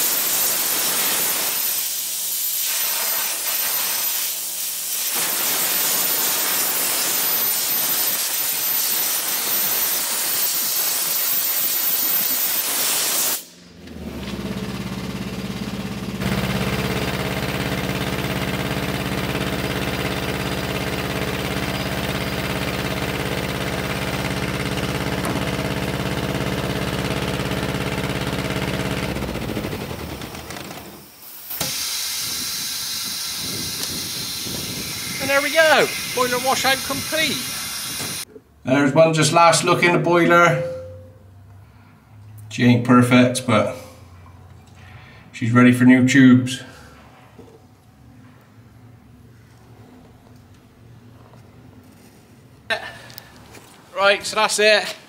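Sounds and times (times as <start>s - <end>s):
high-pressure water jet hissing: 0.0s - 13.6s, 30.8s - 38.3s
pressure washer engine humming: 13.8s - 31.9s, 33.2s - 38.2s.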